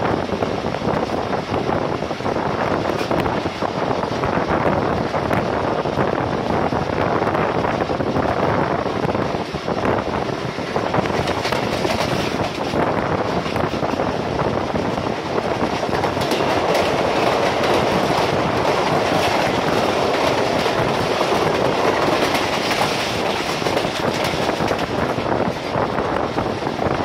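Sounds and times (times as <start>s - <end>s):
train wheels rumbling on rail: 0.0s - 27.0s
wheels clicking over rail joints: 10.9s - 25.8s.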